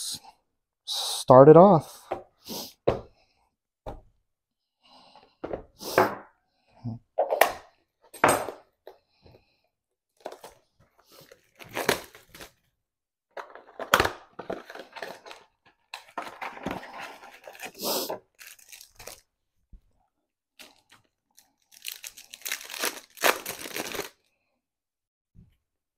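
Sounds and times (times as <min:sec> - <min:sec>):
cardboard box ripping and crinkling: 0:11.4 - 0:12.5, 0:21.8 - 0:24.1.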